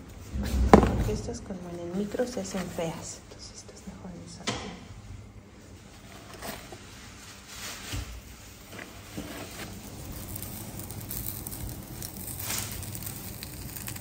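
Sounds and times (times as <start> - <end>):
plastic packaging crinkling: 6.7 - 14.0.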